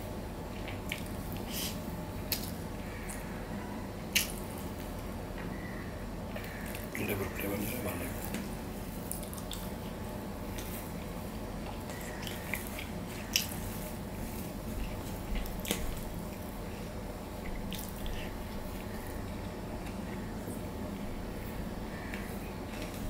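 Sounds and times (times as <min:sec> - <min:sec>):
wet squishing of food by fingers: 0:08.2 - 0:16.6, 0:17.3 - 0:20.3.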